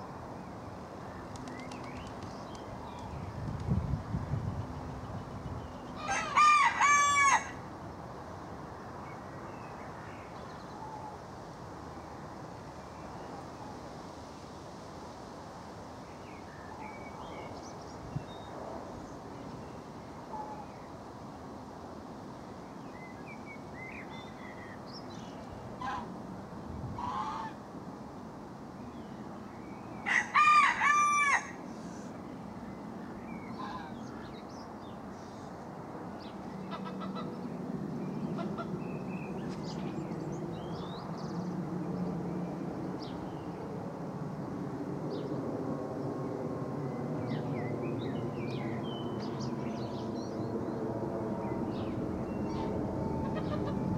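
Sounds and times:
small birds chirping: 1.1 - 6.0
rooster crowing: 6.0 - 7.6, 30.0 - 31.6
distant jet plane rumble: 35.2 - 53.9.

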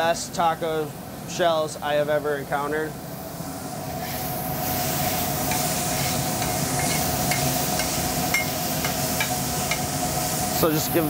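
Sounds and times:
steak sizzling on a griddle: 4.0 - 11.0.

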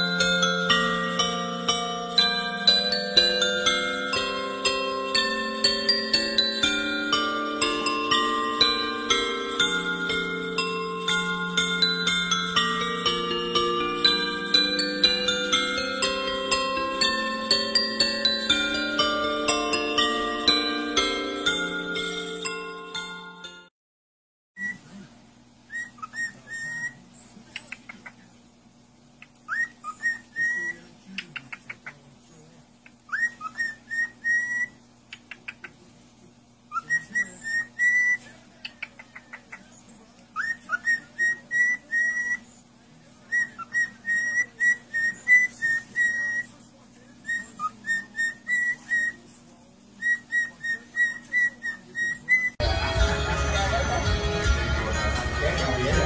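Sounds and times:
ticking chirps: 0.0 - 23.6, 32.8 - 35.8
cockatiel whistling: 25.7 - 27.0, 29.4 - 30.8, 33.1 - 34.8, 36.7 - 38.3, 40.4 - 42.5, 43.3 - 46.6, 47.2 - 49.2, 50.0 - 52.6.

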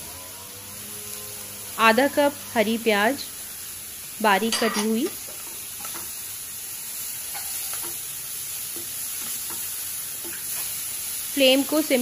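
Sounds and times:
vegetables sizzling in a pan: 0.0 - 12.0
spatula scraping and tapping: 4.5 - 6.1, 7.3 - 8.0.

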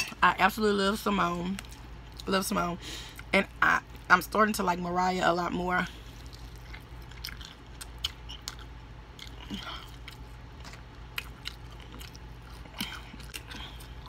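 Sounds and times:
steady low hum: 0.0 - 14.0
crunching fried chicken: 5.9 - 14.0.

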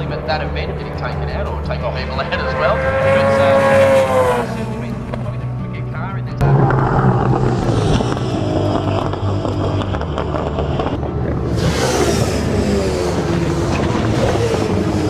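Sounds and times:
racing car engines passing: 0.0 - 15.0.

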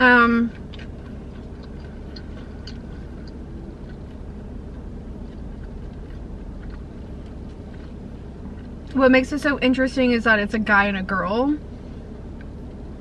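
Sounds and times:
car cabin hum: 0.0 - 13.0
soft chewing mouth clicks: 0.5 - 9.0.

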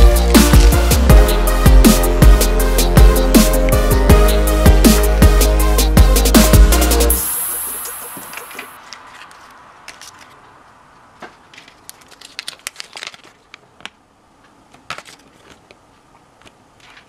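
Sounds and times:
paper leaflet crinkling: 8.3 - 10.4, 11.2 - 15.9.

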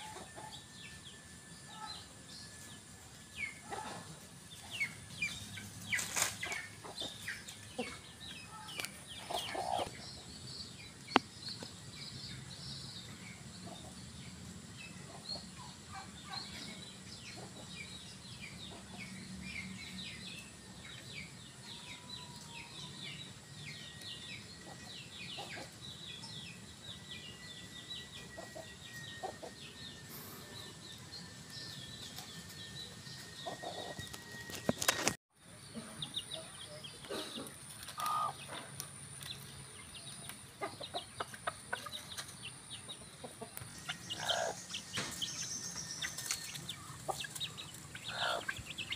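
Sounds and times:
rooster clucking: 48.0 - 48.7.

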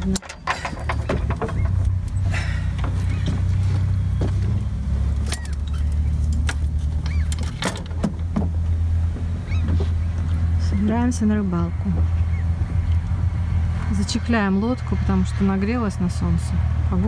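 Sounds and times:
clicks and knocks: 0.0 - 2.2
steady low rumble: 0.0 - 17.0.

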